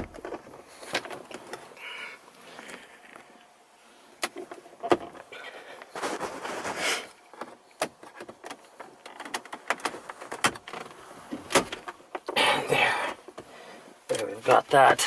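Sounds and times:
scraping rustle: 4.5 - 12.0.

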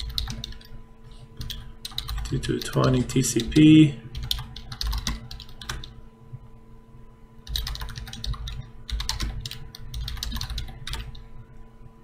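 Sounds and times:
keyboard typing: 0.0 - 0.8, 1.4 - 6.0, 7.4 - 11.2.

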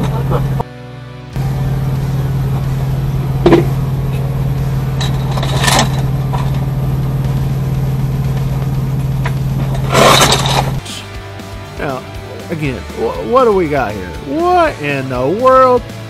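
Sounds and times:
low hum in truck cab: 0.0 - 0.7, 1.4 - 10.9.

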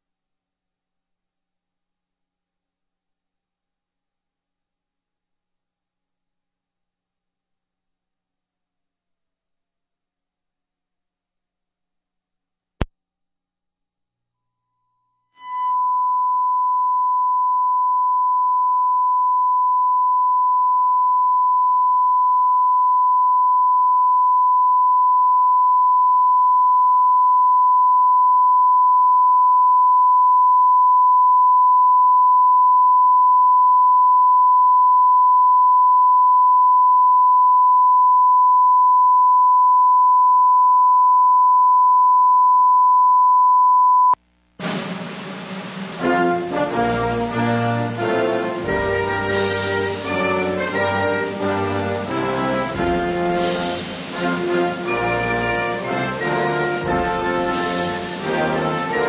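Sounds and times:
high-pitched test tone: 15.4 - 19.0.

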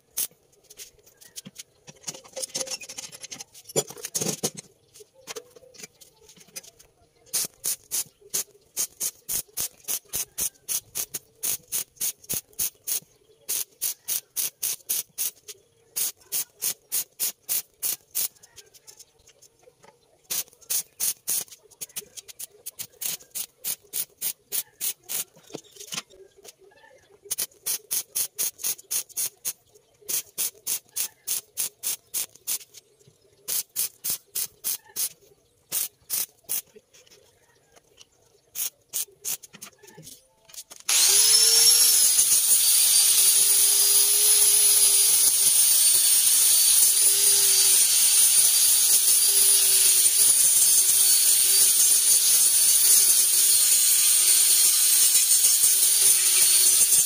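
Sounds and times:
crackling welding bursts: 0.0 - 0.8, 7.3 - 18.4, 20.3 - 25.5, 27.3 - 32.8, 33.5 - 36.7, 38.5 - 39.6, 40.7 - 57.0
angle grinder whine on steel: 40.9 - 57.0.

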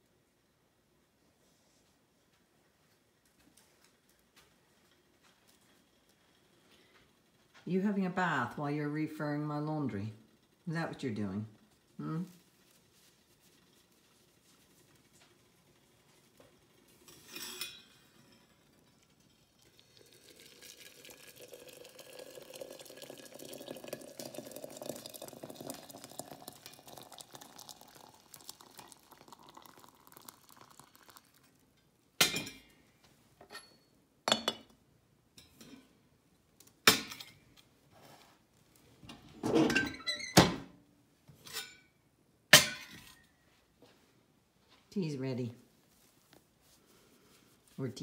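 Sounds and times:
metal and china clanking: 17.0 - 19.4
hot water pouring into teapot: 18.0 - 31.7.

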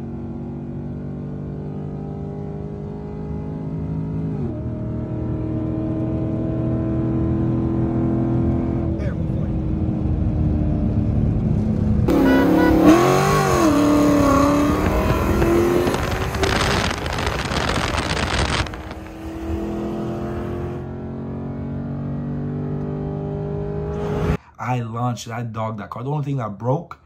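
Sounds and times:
car engine revving: 0.2 - 24.4
tyre noise rushing: 13.5 - 20.3.

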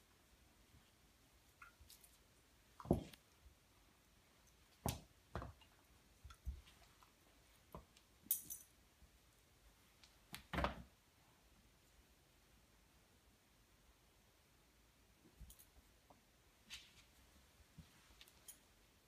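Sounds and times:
metallic jingle: 8.3 - 8.7.

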